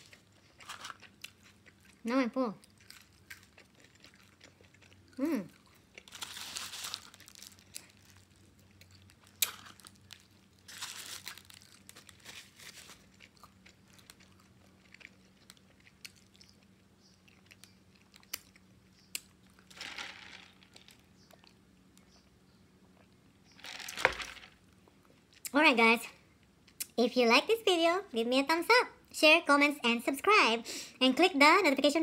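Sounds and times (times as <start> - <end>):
person chewing: 0.0 - 19.7.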